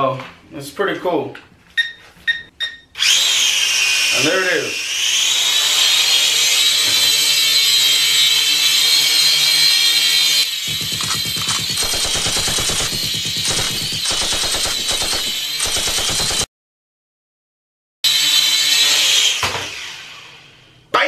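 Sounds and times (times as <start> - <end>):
toy drone propellers whining: 3.0 - 16.4, 18.1 - 20.7
machine-gun sound effect: 10.5 - 16.5.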